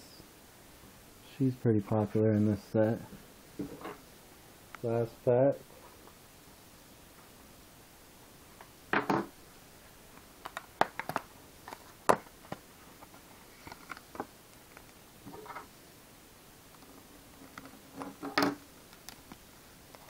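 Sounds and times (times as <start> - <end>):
cards rustling: 10.4 - 15.0.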